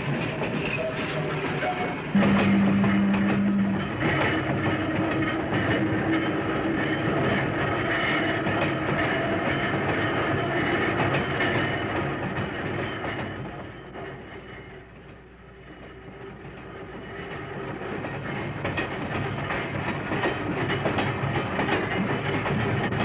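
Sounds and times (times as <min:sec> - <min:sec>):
railcar wheels clicking over rail joints: 0:00.0 - 0:23.0
low hum: 0:02.2 - 0:05.4.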